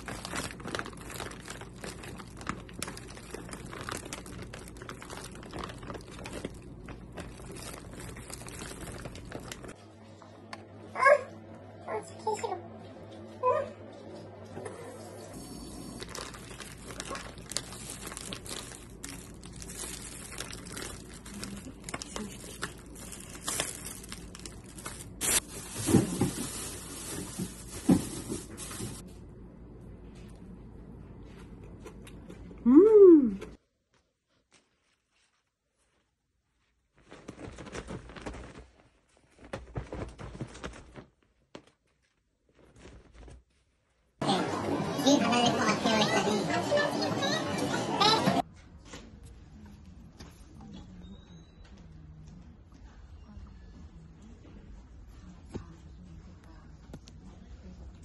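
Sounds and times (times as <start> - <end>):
plastic bag crinkling: 0.0 - 9.8, 15.8 - 29.0, 36.9 - 43.4
sheets rustling: 16.0 - 29.0, 34.5 - 43.6.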